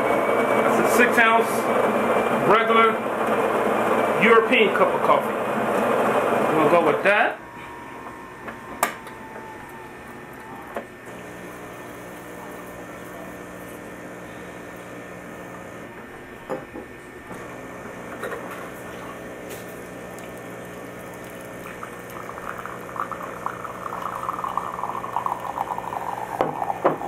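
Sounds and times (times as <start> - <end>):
espresso machine humming: 0.0 - 27.0
coffee streaming into cup: 9.4 - 15.9, 17.3 - 27.0.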